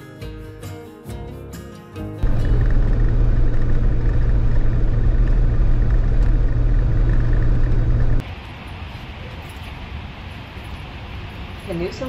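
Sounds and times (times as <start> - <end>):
car driving on gravel: 2.2 - 8.3.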